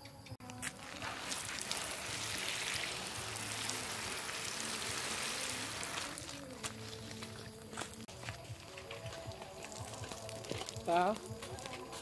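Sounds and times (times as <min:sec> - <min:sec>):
water spattering from watering can: 0:00.6 - 0:07.1.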